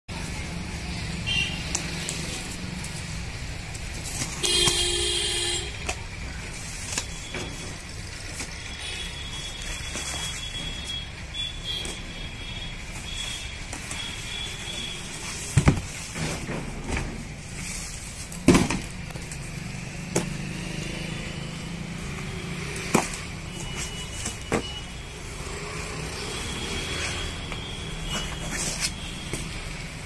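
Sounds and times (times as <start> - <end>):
steady background noise: 0.1 - 30.0
cardboard box knocks and thumps: 15.5 - 16.0.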